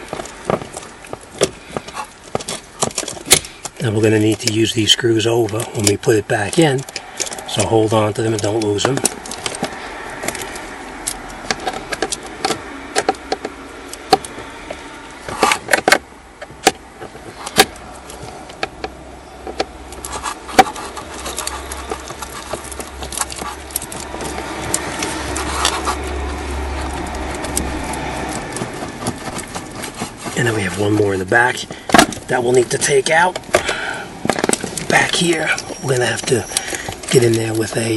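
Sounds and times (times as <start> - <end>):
hand tool and screws clinking: 34.4 - 37.9.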